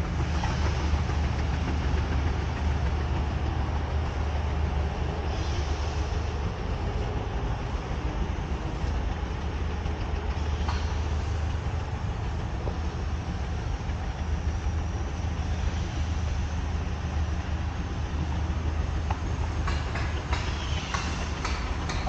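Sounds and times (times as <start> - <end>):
machinery rumbling: 0.0 - 22.0.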